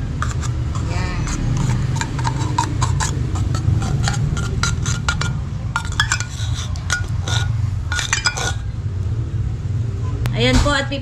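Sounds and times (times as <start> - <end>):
metal spoon scraping tin can: 0.0 - 8.7
steady low rumble: 0.0 - 11.0.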